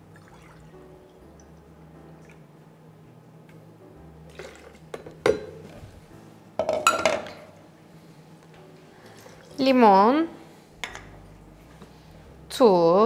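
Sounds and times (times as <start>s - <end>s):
kitchenware knocking on counter: 6.6s - 7.4s.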